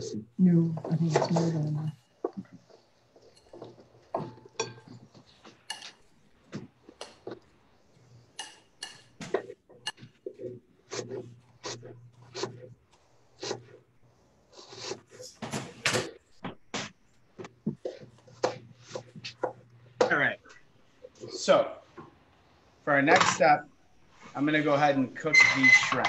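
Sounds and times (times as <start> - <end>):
utensils clinking against dishes: 3.3 - 6.1, 8.3 - 10.1, 25.3 - 26.0.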